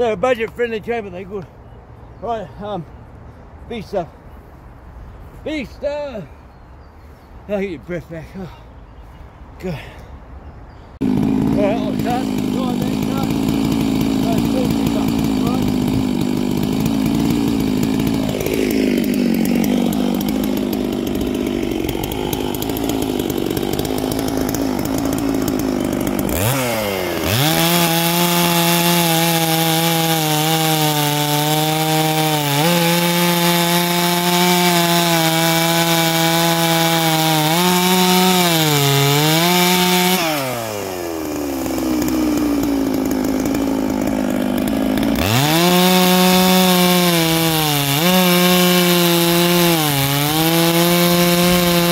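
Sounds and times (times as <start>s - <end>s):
chainsaw revving and cutting log: 11.0s - 51.9s.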